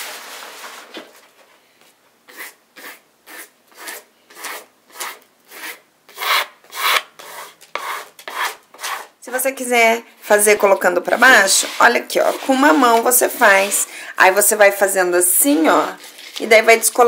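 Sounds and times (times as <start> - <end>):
spatula scraping wallpaper: 2.3 - 9.1, 10.3 - 13.9, 15.5 - 17.0.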